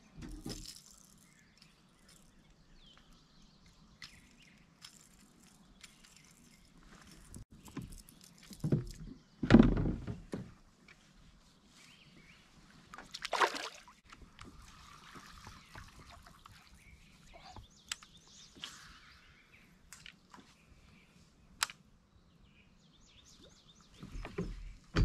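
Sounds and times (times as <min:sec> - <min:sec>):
fishing gear clicks and rustles: 0:00.2 - 0:09.2
thuds in plastic kayak: 0:08.6 - 0:10.5.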